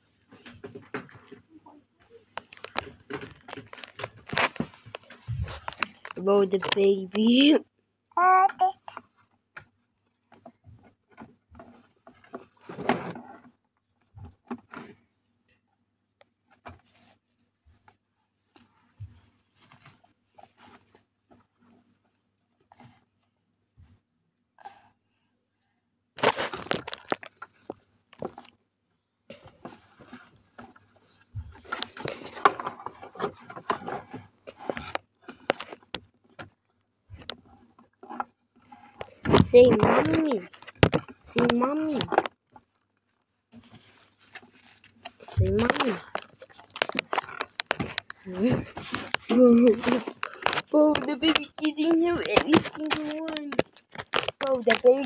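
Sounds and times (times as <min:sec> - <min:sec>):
baby handling things close by: 0:00.3 - 0:07.5, 0:10.3 - 0:15.1, 0:16.5 - 0:23.0, 0:26.2 - 0:28.6, 0:29.3 - 0:55.0
diapers rustling: 0:02.2 - 0:07.5, 0:29.3 - 0:36.0, 0:43.6 - 0:55.0.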